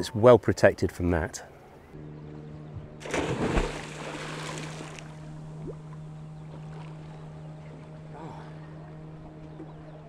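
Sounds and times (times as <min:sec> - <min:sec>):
steady low hum: 0:01.4 - 0:10.0
person diving into water splash: 0:03.0 - 0:05.2
water churning and fizzing: 0:03.0 - 0:05.8.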